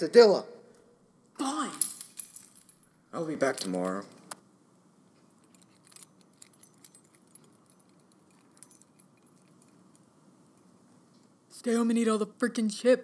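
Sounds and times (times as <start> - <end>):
keys jingling: 1.7 - 4.4, 5.2 - 10.8.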